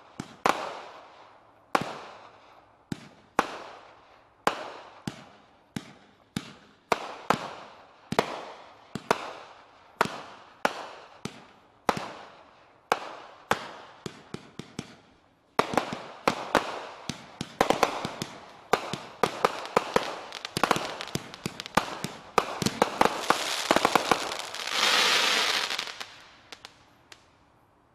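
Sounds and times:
firework crackling: 15.6 - 27.3.

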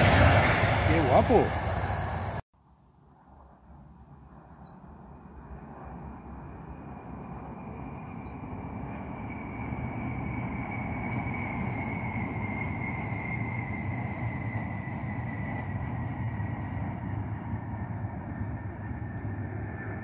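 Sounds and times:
high train whine: 0.0 - 2.4, 4.8 - 20.0
high-speed train rushing rumble: 0.0 - 2.4, 4.8 - 20.0.

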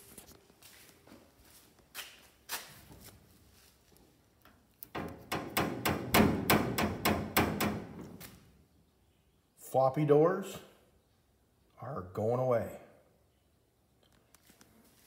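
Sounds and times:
loose steel door knocking and rattling: 4.9 - 8.1.

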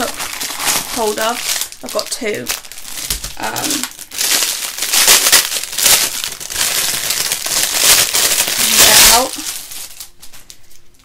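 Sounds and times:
plastic packaging crinkling: 0.0 - 11.0.

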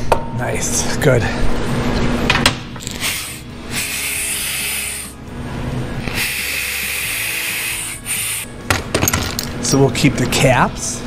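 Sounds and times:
cordless ratchet motor whirring: 2.9 - 5.2, 6.0 - 8.5.

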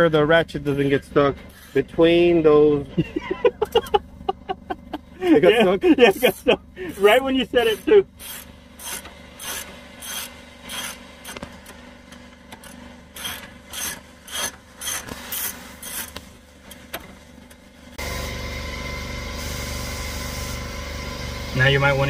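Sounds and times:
steady mechanical running noise: 0.0 - 22.0
hand ratchet clicking: 8.2 - 11.4, 12.5 - 16.2.

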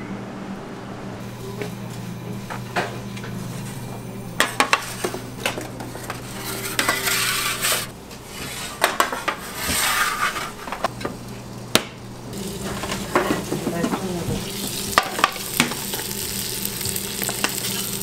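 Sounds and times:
steady low hum: 0.0 - 18.0
metal pans clanking and scraping: 4.4 - 10.9, 12.6 - 14.2.

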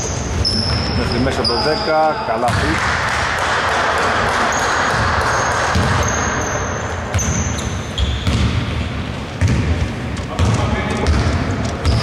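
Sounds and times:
sneakers squeaking: 0.0 - 2.8, 3.9 - 12.0
basketball bouncing: 2.4 - 12.0.

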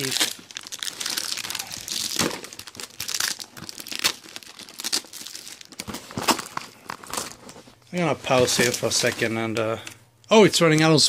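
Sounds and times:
packing tape ripping: 0.0 - 7.4
plastic wrapping crinkling: 0.0 - 11.0.

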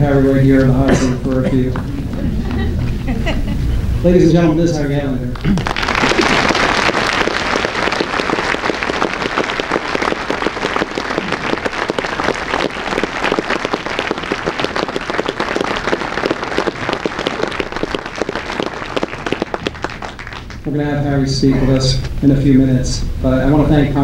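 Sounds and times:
audience applauding: 5.3 - 20.8.

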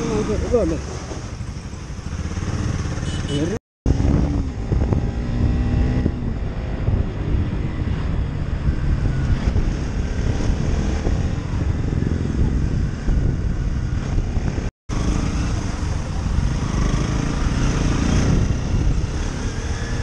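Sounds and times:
motorcycle engine running: 0.0 - 7.8
wind rumbling on microphone: 3.9 - 20.0.

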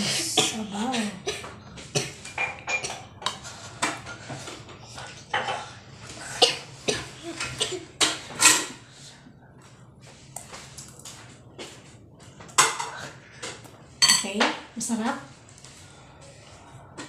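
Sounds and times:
metal spoon clinking on ceramic bowls: 2.3 - 3.4.

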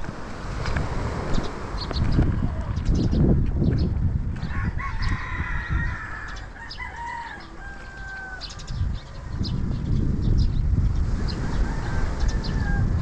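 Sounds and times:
rooster crowing: 4.4 - 9.5, 11.4 - 13.0.

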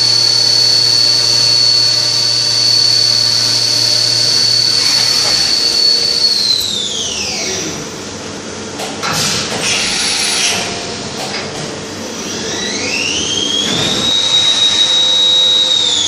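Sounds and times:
cutter milling metal: 0.0 - 7.2, 12.6 - 16.0
machine spindle whining: 0.0 - 7.6, 12.2 - 16.0.

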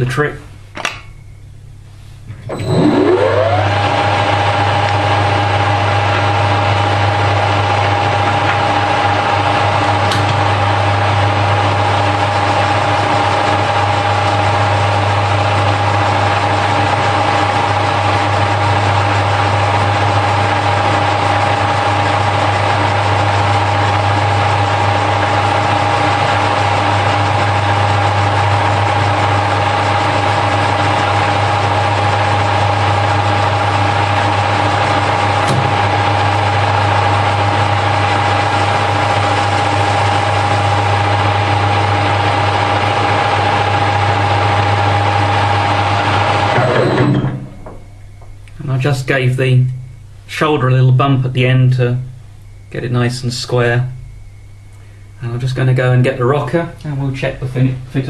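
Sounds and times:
lathe motor humming and whining: 2.4 - 48.3.

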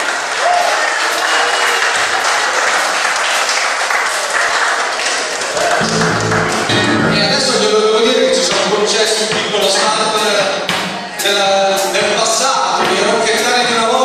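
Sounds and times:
audience applause: 0.0 - 7.2
low amplified instrument notes: 5.8 - 11.4.

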